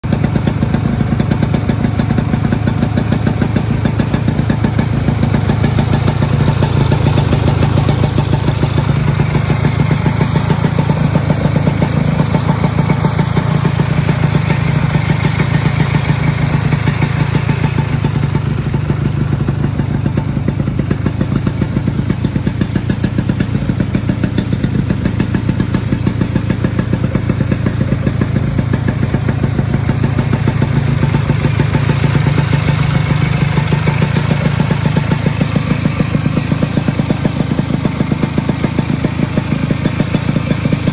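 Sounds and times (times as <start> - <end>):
two-stroke snowmobile engine running: 0.0 - 40.9.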